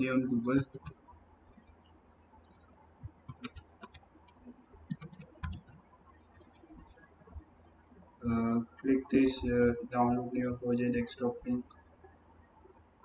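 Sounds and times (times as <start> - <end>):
faint low hum: 0.0 - 13.0
computer keyboard keys clicking: 0.5 - 1.2, 2.5 - 5.8.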